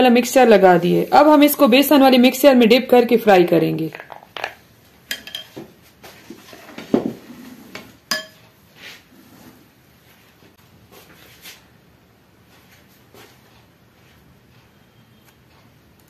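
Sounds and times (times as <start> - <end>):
spoon clinking against glass bowl: 5.1 - 5.6, 8.1 - 8.4.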